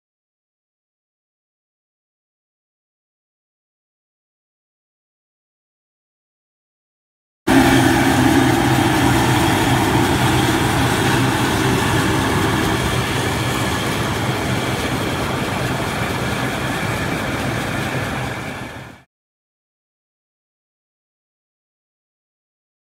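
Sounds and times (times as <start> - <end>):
combine harvester drone: 7.5 - 19.0.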